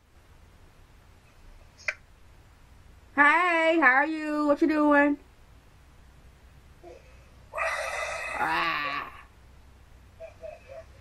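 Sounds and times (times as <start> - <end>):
person making raspy breathy noise: 6.8 - 9.3.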